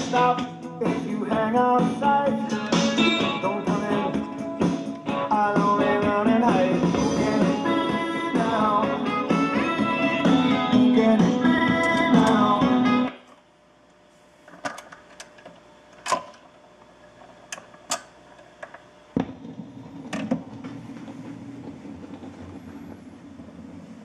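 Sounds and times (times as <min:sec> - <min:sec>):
record surface noise: 0:00.0 - 0:24.0
record changer clicks and clunks: 0:11.4 - 0:13.4, 0:14.5 - 0:16.5, 0:17.1 - 0:22.3
record dropping thump: 0:19.1 - 0:22.4.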